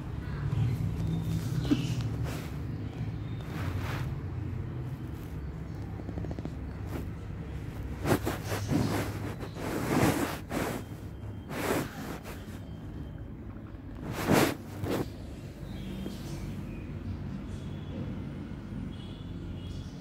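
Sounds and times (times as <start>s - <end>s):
low background hum: 0.0s - 20.0s
rustling on cloth bedspread: 0.5s - 13.2s, 14.0s - 16.3s.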